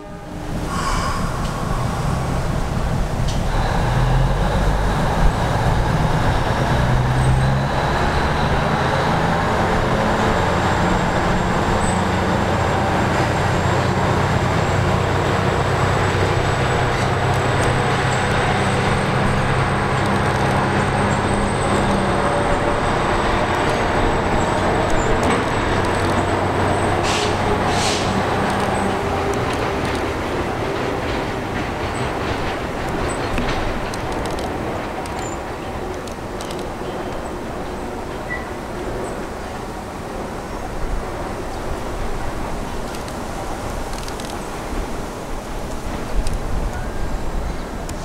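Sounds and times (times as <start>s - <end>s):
short hisses: 0.6s - 3.9s
locomotive engine running: 1.3s - 48.0s.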